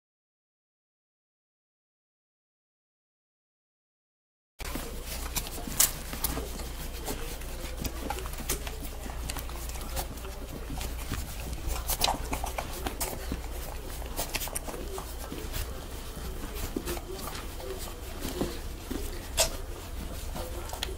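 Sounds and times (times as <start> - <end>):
puppies suckling: 4.6 - 20.9
steady low hum: 4.6 - 20.9.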